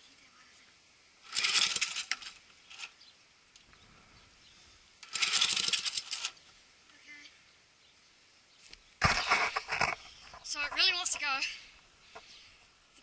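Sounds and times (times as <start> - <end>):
lawn mower engine cranking: 1.2 - 3.0, 5.0 - 6.4.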